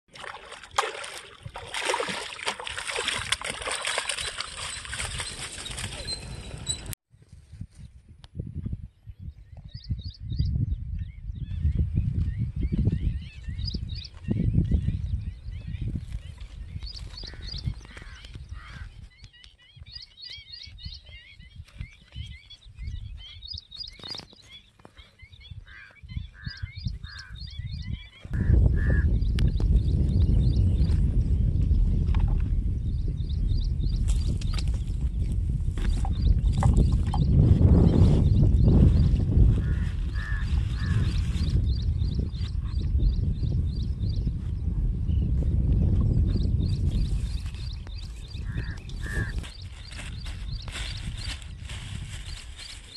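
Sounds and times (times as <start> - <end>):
water pouring off a net: 0.1 - 6.0
fish thrashing and splashing: 0.1 - 6.1
small birds chirping: 8.9 - 31.5, 46.2 - 51.5
harsh bird calls: 16.8 - 30.0, 47.6 - 51.4.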